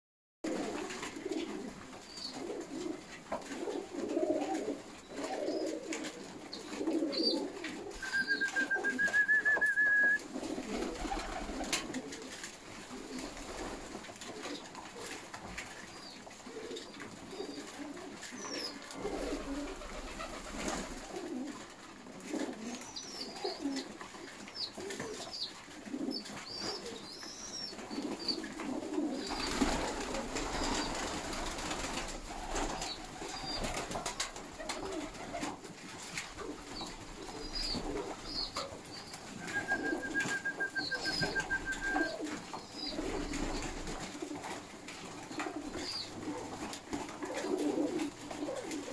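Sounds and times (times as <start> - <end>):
pigeons cooing: 0.5 - 13.7, 16.0 - 21.6, 22.2 - 24.0, 24.6 - 44.5, 45.3 - 48.9
short high chirps: 8.0 - 10.2.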